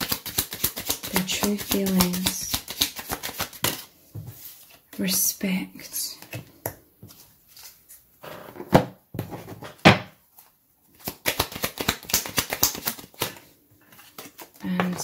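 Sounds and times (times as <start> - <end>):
cards shuffling clicks: 0.0 - 3.9, 10.9 - 15.0.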